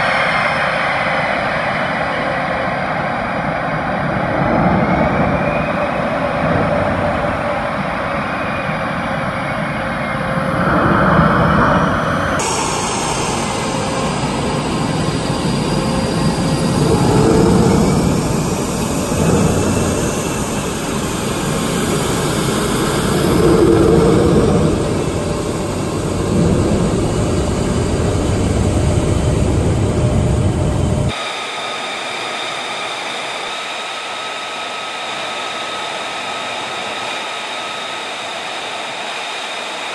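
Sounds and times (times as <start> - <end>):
jet engine rumble and whine: 0.0 - 39.9
high jet whine idling: 11.4 - 39.9.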